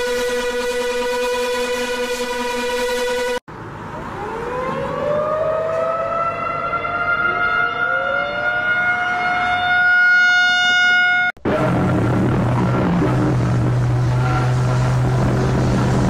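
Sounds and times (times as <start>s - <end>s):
second rising siren tone: 0.0s - 16.0s
warning siren wailing: 0.0s - 16.0s
low droning sound: 11.4s - 16.0s.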